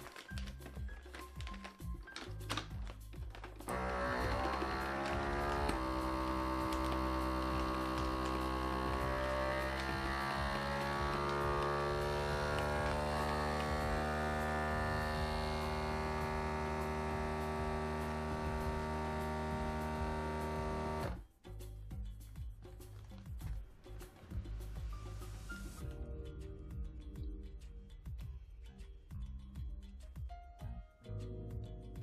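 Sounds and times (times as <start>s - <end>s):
vacuum sealer pump humming: 3.7s - 21.2s.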